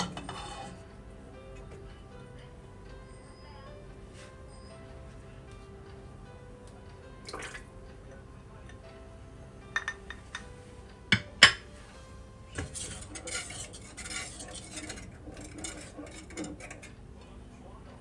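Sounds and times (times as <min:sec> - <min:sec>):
utensil scraping steel bowl: 0:00.0 - 0:00.9, 0:12.5 - 0:17.0.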